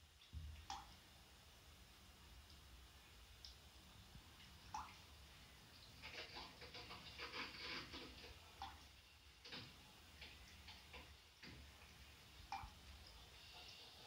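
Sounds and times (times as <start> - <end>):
cat lapping water: 3.4 - 14.0.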